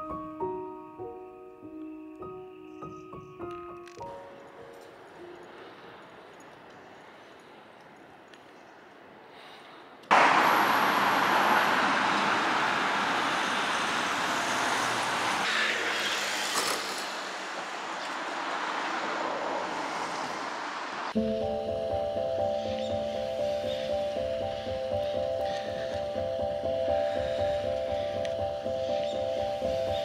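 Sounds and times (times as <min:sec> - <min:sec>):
music: 0:00.0 - 0:05.9, 0:21.2 - 0:30.0
road traffic rumble: 0:04.0 - 0:30.0.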